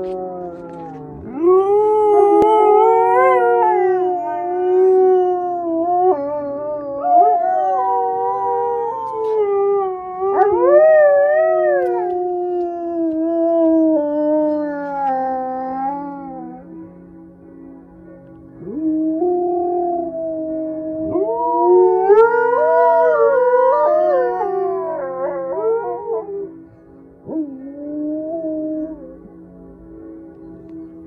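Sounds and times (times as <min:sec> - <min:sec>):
dogs howling: 0:00.0 - 0:16.6, 0:18.6 - 0:26.6.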